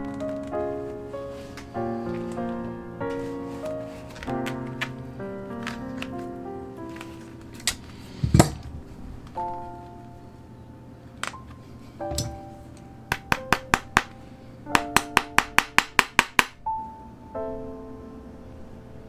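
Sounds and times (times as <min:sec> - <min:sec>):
soft background music: 0:00.0 - 0:19.0
hammer tapping tacks: 0:13.1 - 0:14.2, 0:14.8 - 0:16.6.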